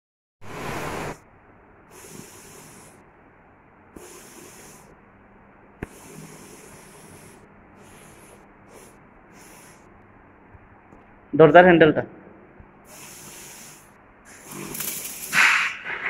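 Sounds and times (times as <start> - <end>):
sprayer hissing bursts: 1.9 - 3.0, 3.9 - 5.0, 5.8 - 10.0, 12.8 - 15.8.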